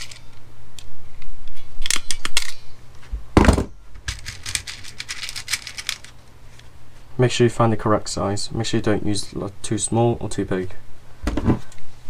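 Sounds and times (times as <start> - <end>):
loud thunk on desk: 3.4 - 3.7.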